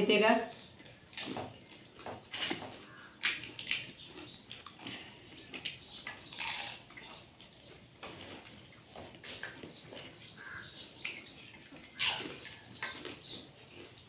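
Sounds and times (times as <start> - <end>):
crisp shells crunching: 6.3 - 6.8.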